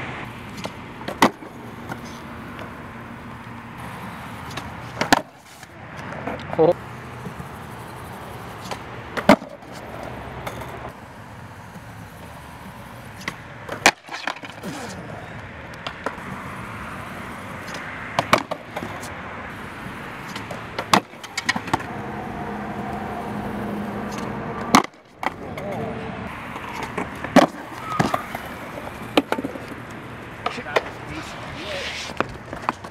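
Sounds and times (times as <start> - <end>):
skateboard wheels rolling on concrete: 0.0 - 32.9
skateboard slapping down: 0.5 - 2.0, 4.5 - 5.4, 8.6 - 9.8, 13.2 - 15.1, 17.7 - 18.9, 20.2 - 21.9, 24.6 - 25.9, 26.6 - 32.9
skateboard tail popping: 0.5 - 2.8, 3.8 - 6.4, 8.5 - 10.8, 11.7 - 15.0, 15.7 - 16.2, 17.6 - 19.1, 20.2 - 21.9, 24.1 - 25.8, 26.5 - 32.9.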